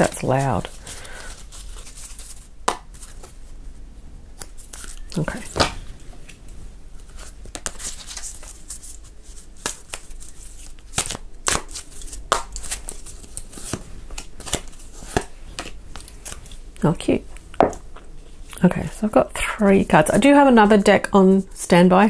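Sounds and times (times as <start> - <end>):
cards being shuffled: 0.0 - 3.5, 4.4 - 16.6.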